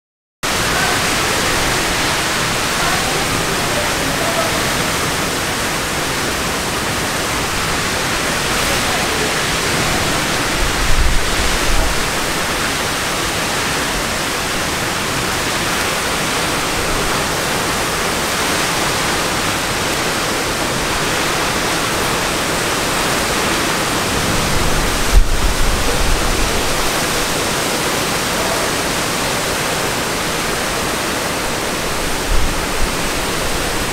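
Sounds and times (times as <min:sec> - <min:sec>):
torrential rain: 0:00.4 - 0:33.9
low rumbles: 0:20.6 - 0:27.6.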